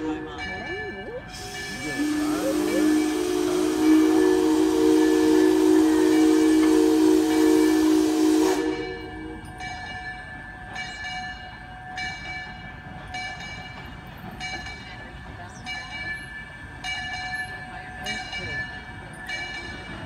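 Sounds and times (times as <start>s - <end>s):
locomotive bell ringing: 0.0s - 20.0s
steam hissing: 1.2s - 9.9s
steam whistle chord: 1.3s - 10.2s.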